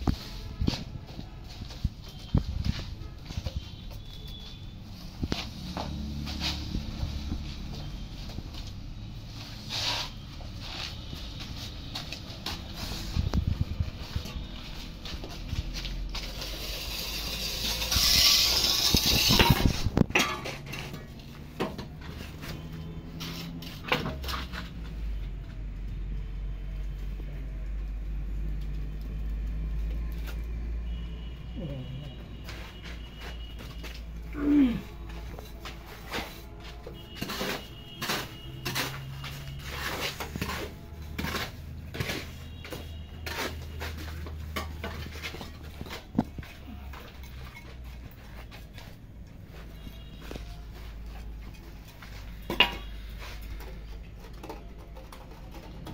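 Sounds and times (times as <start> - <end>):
hoe scraping wet mortar: 9.4 - 11.2, 15.3 - 21.3, 34.7 - 48.7
loud rasping scrape: 16.2 - 20.0.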